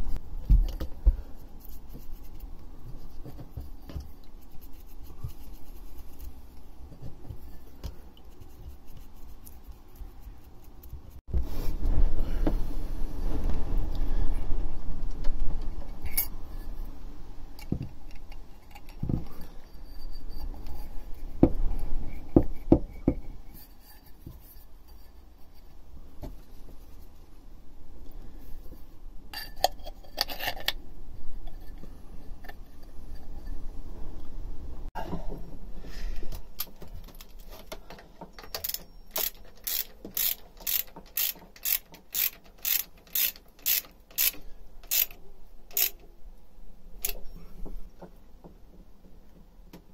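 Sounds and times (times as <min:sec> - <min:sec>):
low rubbing handling noise: 0:00.0 - 0:29.2.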